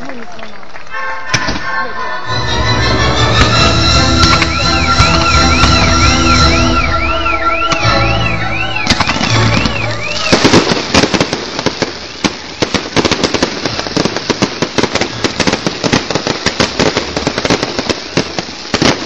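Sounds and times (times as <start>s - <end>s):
fireworks cracking and popping: 0.0s - 19.0s
warbling music: 1.4s - 10.6s.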